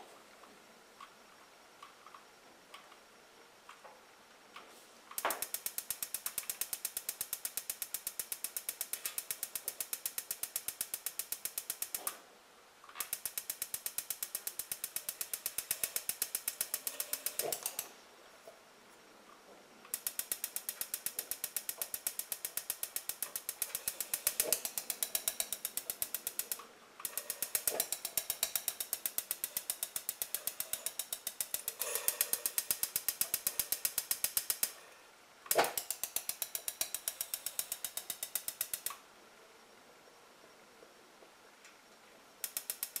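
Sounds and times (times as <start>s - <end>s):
igniter sparking ticking: 5.1s - 12.2s, 12.9s - 18.0s, 19.9s - 34.9s, 35.5s - 39.0s, 42.4s - 43.0s.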